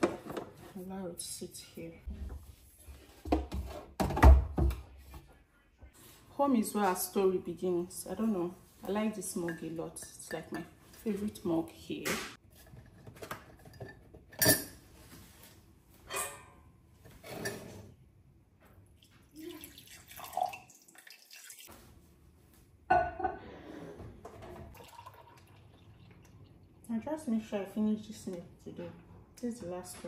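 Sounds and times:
milk poured into mug: 19.0 - 21.7, 24.7 - 26.8
water poured into mug: 19.0 - 21.7, 24.7 - 26.9.

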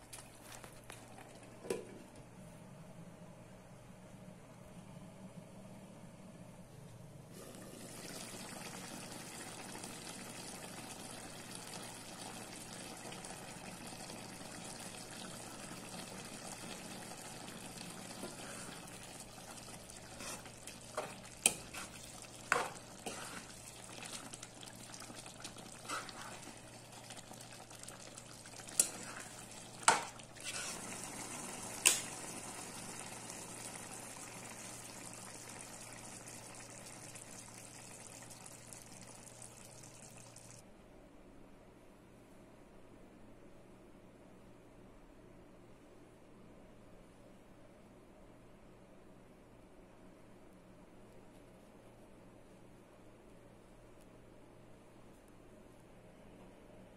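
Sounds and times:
curry bubbling in a pan: 7.4 - 40.6.

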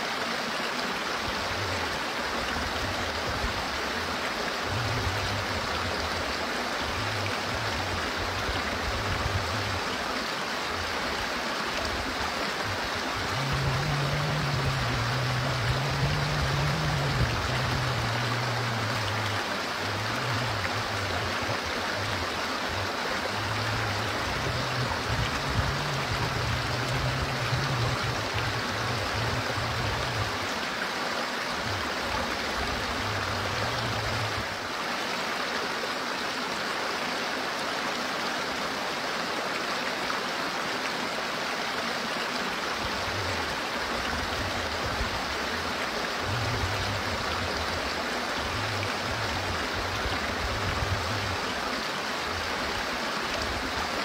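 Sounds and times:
stream splashing over stones: 0.0 - 54.0
low rumble: 13.2 - 19.4, 23.4 - 30.4.

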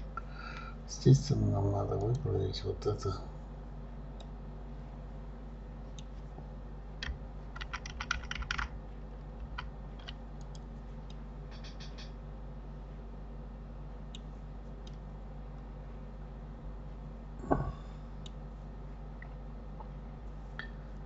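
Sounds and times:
low electrical hum: 0.0 - 21.0
keyboard and mouse clicks: 7.0 - 8.7, 9.4 - 10.7, 11.5 - 12.2.

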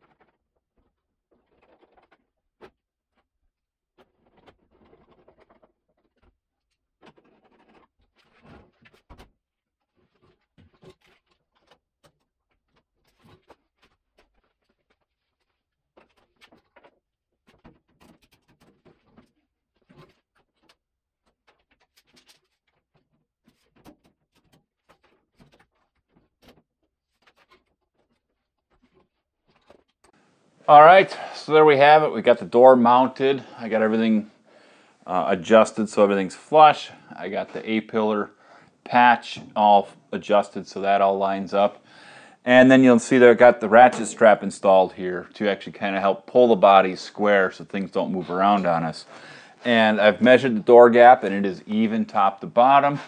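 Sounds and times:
hand tools scraping: 42.4 - 53.0.

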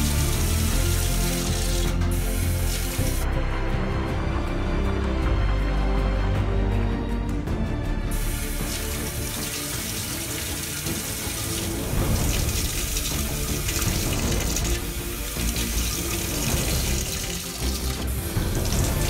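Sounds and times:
water spray splattering in bowl: 0.0 - 3.2, 8.1 - 19.0
background music: 0.0 - 19.0.

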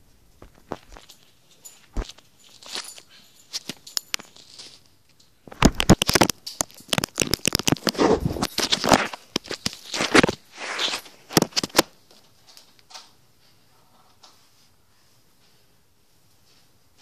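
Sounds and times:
handling clicks and crackling: 0.3 - 13.1.

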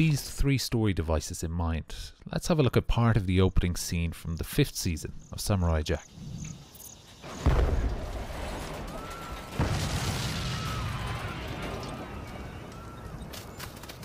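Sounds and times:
deep explosion booms: 7.3 - 13.2.

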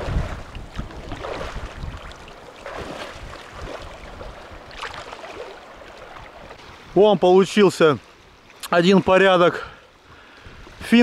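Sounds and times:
wind buffeting microphone: 0.0 - 7.2
waves splashing against rocks: 0.0 - 8.0.

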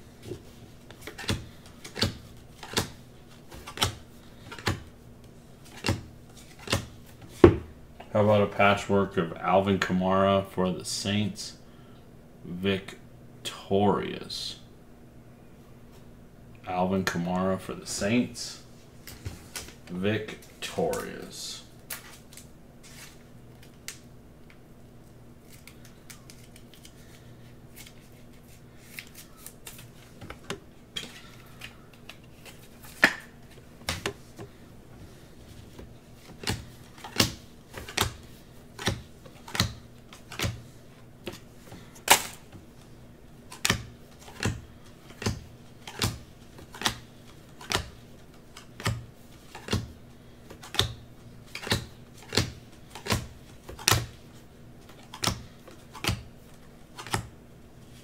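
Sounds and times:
faint steady hum: 0.0 - 58.0
cards flicking clicks: 43.5 - 47.0, 47.6 - 48.0, 50.5 - 54.2, 55.0 - 56.3.

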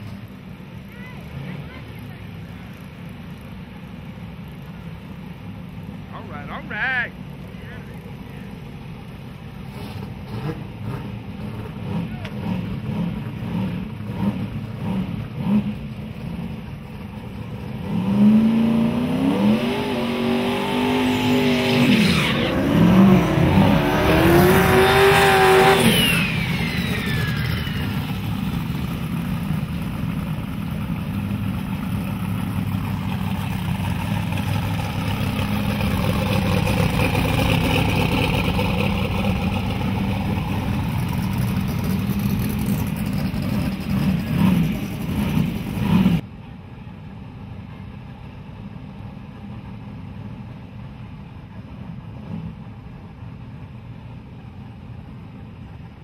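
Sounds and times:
race car engines revving: 0.0 - 46.2
whine: 15.7 - 47.0.

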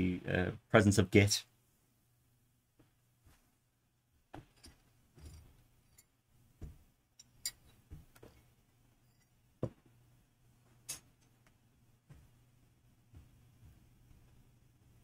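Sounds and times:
faint steady hum: 0.0 - 15.0
faint clicks and taps: 10.7 - 12.4.

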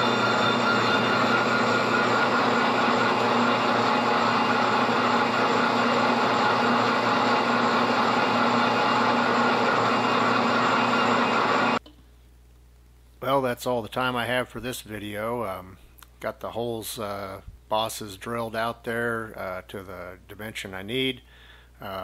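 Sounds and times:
milling machine hum: 0.0 - 11.8
steady whining tones: 0.0 - 11.8.

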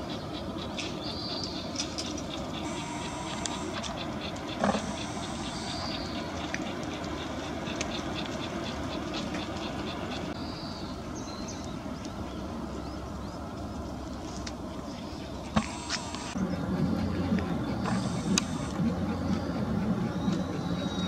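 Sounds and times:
small birds chirping: 0.0 - 13.7, 14.6 - 21.0
distant road traffic rumble: 0.0 - 21.0.

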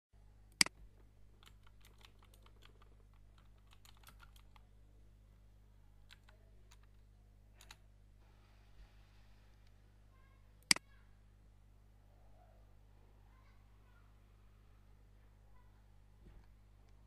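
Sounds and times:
low electrical hum: 0.2 - 17.0
typing on a keyboard: 1.3 - 4.7, 6.1 - 7.0, 7.6 - 7.8.

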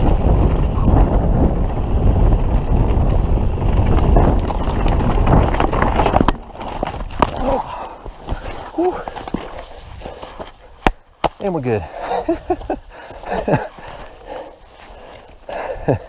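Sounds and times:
rush of wind and tyre noise: 0.0 - 10.6
bike rattling over ground: 0.0 - 11.1.

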